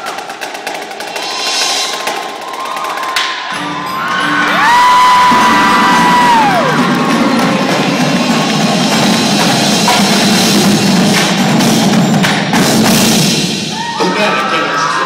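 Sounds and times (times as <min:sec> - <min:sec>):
marching drums: 0:00.0 - 0:14.5
marimbas and mallet percussion: 0:03.4 - 0:10.6.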